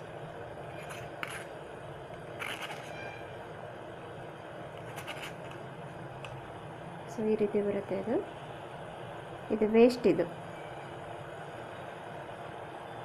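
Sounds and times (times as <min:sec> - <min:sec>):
spoon scraping metal strainer: 0:00.7 - 0:01.5, 0:02.4 - 0:03.2, 0:04.8 - 0:05.6.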